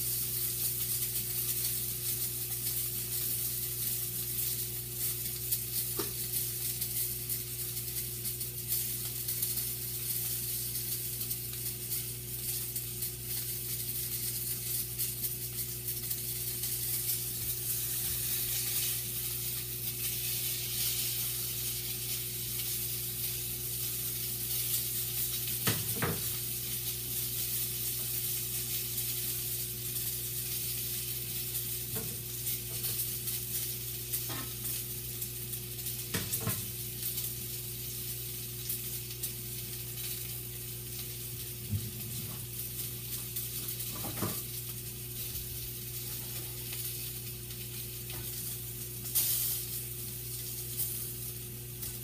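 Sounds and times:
low steady hum: 0.0 - 52.0
sausage sizzling in a frying pan: 0.0 - 52.0
knocks against a pan: 25.6 - 26.3, 43.9 - 44.4.

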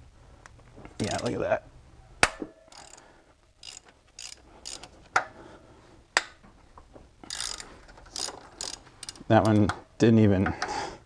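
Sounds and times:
ratchet wrench clicking: 2.7 - 3.0, 3.6 - 5.0, 7.2 - 9.7.

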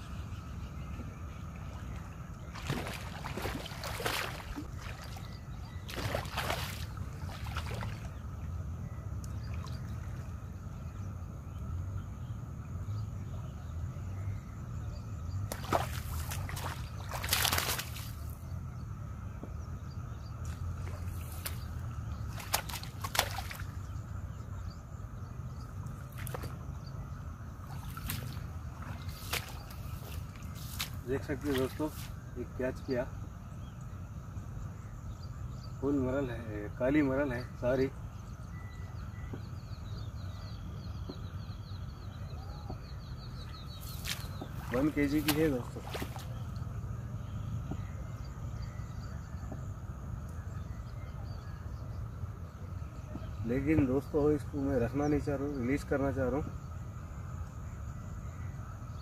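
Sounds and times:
fish thrashing and splashing: 2.5 - 5.3, 5.9 - 8.1, 15.5 - 18.2, 20.8 - 23.8, 27.6 - 32.1, 43.8 - 46.4.

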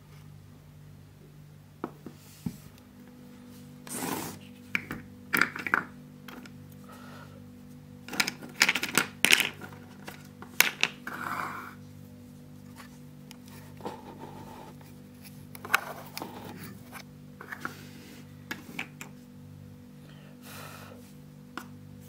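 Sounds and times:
plastic tools clicking and clattering: 8.1 - 11.0.

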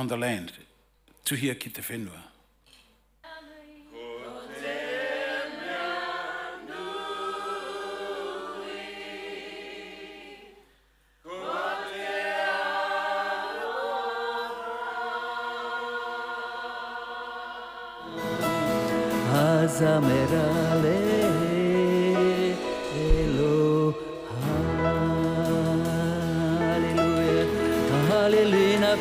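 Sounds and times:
unaccompanied chanted singing: 3.9 - 10.6, 11.2 - 18.4.

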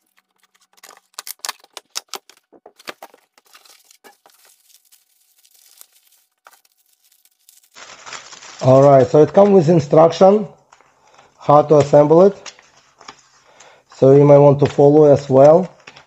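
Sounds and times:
plastic wrapping crinkling: 0.0 - 9.8.

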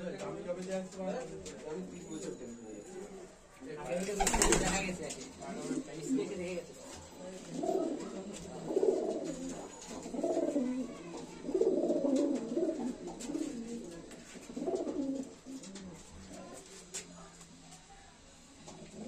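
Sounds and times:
pigeons cooing: 5.5 - 16.4.

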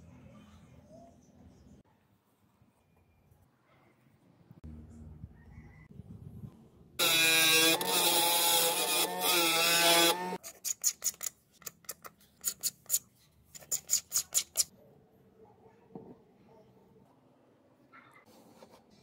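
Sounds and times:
table saw cutting plastic: 7.0 - 10.4.

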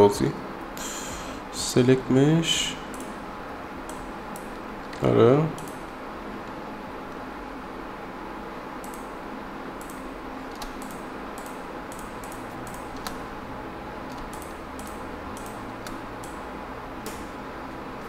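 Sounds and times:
steady low hum: 0.0 - 18.0
computer mouse and keyboard clicking: 8.8 - 9.1, 9.8 - 13.2, 14.1 - 16.4.

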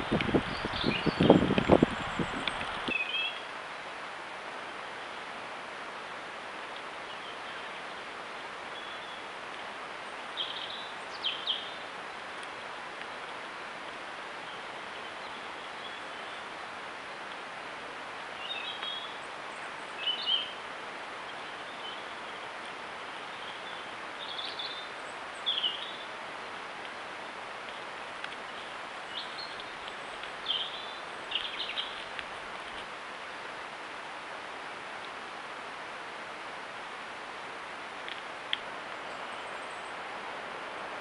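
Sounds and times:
microphone hiss: 0.0 - 41.0
small bird chirping: 0.5 - 3.4, 28.5 - 32.0.

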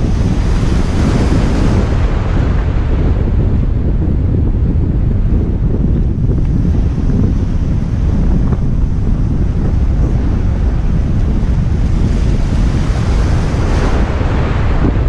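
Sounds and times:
surf washing against jetty: 0.0 - 15.0
wind buffeting microphone: 0.0 - 15.0.

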